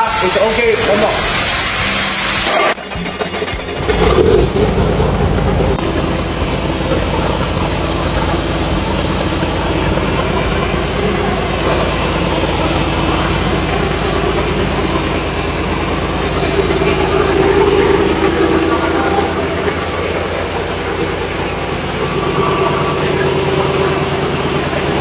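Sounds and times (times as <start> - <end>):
diesel engine starting and running: 0.0 - 25.0.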